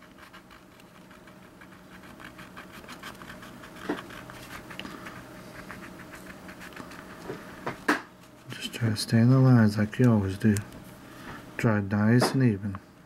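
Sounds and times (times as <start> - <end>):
crayon scratching on paper: 0.0 - 7.3.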